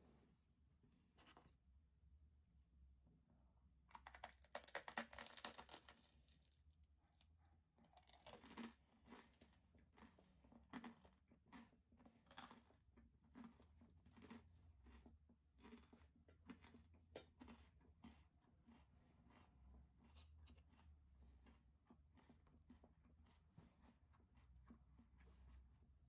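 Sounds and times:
crunchy bite into toast: 3.9s - 6.6s, 7.9s - 9.4s
faint chewing crunches: 3.9s - 26.0s.

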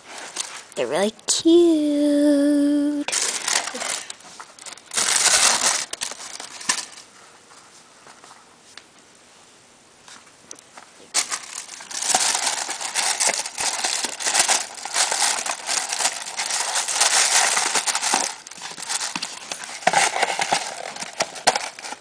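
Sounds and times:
tissue paper rustling: 3.0s - 7.9s, 11.1s - 22.0s.

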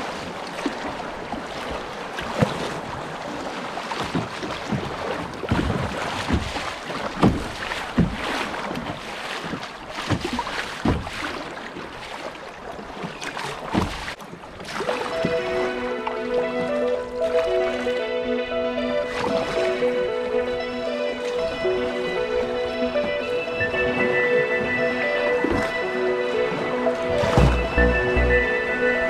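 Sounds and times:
water slapping against hull: 0.0s - 18.2s, 18.9s - 28.4s
river current rushing and splashing: 0.0s - 29.0s.

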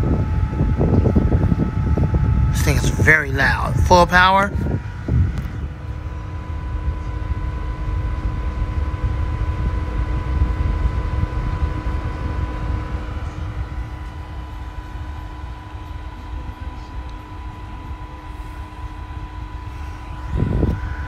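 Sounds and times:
fan air rush: 0.0s - 21.0s
fan motor whine: 0.0s - 21.0s.

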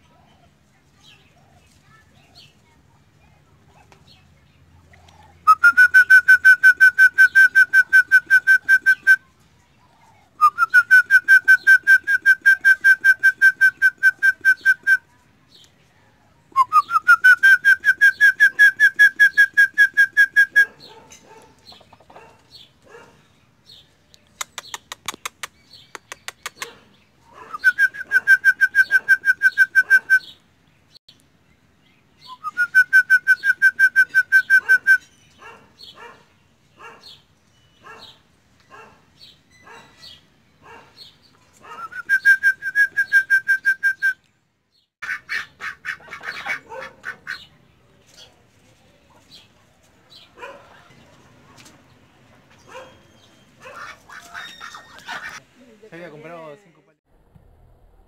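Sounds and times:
loud trilled whistle: 5.5s - 9.2s, 41.9s - 44.2s
quick run of clicks: 24.2s - 26.8s.

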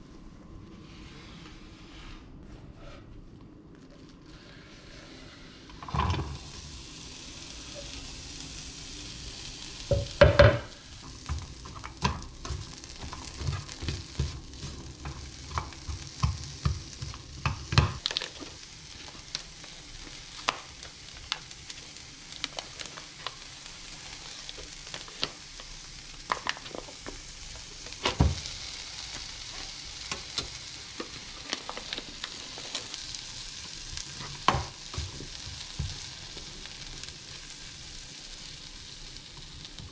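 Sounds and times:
onion sizzling in pan: 4.3s - 39.9s.

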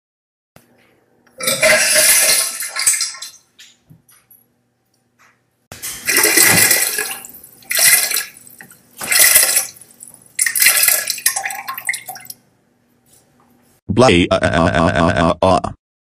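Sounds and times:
cartoon vomiting retching: 1.4s - 2.5s
liquid splashing: 6.0s - 12.4s.

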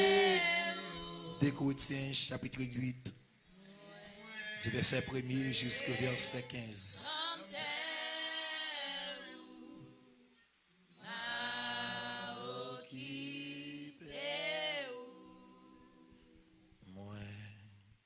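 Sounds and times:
unaccompanied singing: 0.0s - 2.1s, 3.7s - 10.4s, 11.0s - 16.6s.

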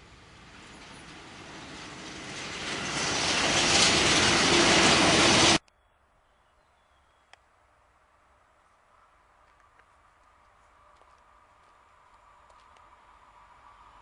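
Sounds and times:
train passing on rails: 0.0s - 5.6s, 10.8s - 14.0s.

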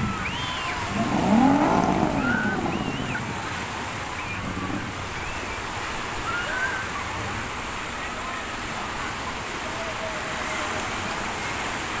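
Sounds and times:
sea surf: 0.0s - 12.0s
long rising and falling call: 0.9s - 3.6s.

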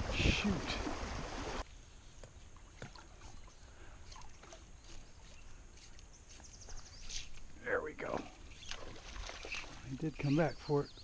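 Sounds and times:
rush of wind and water: 0.0s - 1.6s
water lapping around a boat: 0.0s - 1.6s, 2.6s - 5.3s, 8.0s - 10.0s.

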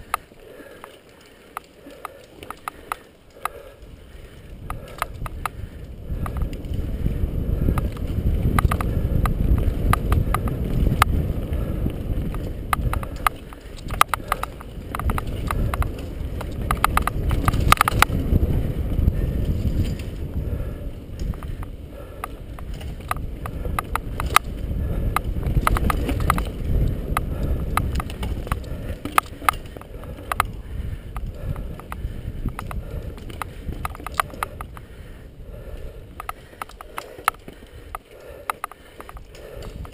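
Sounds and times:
bike clicking and rattling: 0.0s - 39.9s
tyre and wind rumble: 0.0s - 39.9s.

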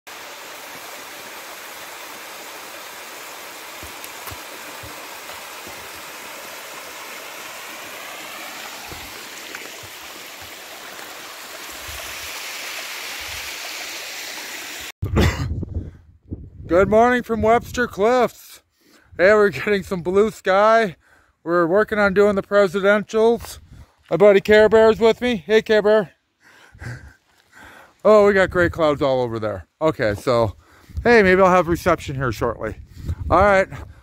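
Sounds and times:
stream running over rocks: 0.1s - 14.9s.

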